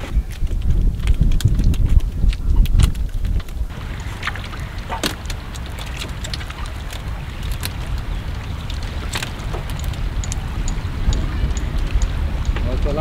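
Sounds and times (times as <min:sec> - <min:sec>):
water lapping against boat hull: 0:00.0 - 0:13.0
wind rumble on microphone: 0:00.0 - 0:13.0.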